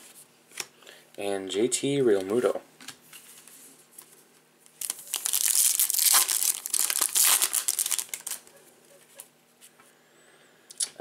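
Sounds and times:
plastic wrapper tearing and crinkling: 0:04.7 - 0:08.5.

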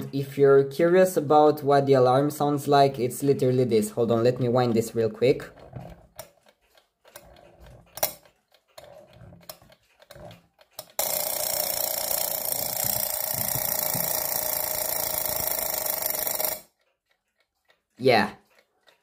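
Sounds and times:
alarm clock ringing: 0:10.8 - 0:16.8.

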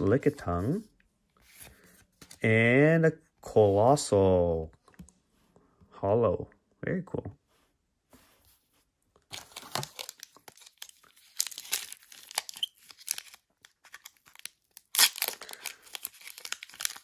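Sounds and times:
foil pack ripping open: 0:09.3 - 0:17.0
foil wrapper crinkling: 0:09.3 - 0:17.0.

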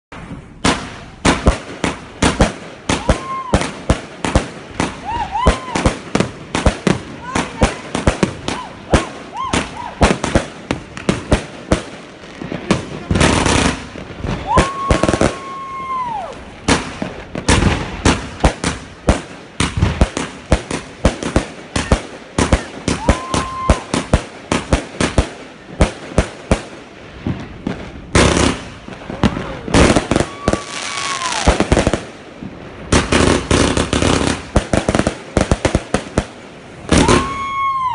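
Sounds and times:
firework bangs and crackling: 0:00.1 - 0:37.9
firework whistle: 0:02.9 - 0:03.8, 0:14.2 - 0:16.5, 0:21.7 - 0:24.1, 0:30.0 - 0:31.6, 0:36.8 - 0:37.9.

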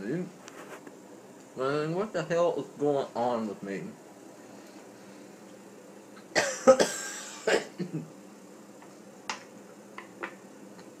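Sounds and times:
man coughing and sputtering: 0:06.3 - 0:08.1.

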